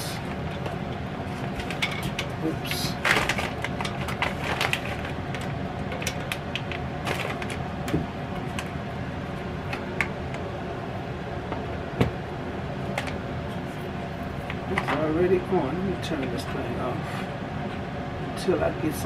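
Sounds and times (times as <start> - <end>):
electric kettle humming: 0.0 - 19.0
clicks and knocks of handling: 0.3 - 8.7.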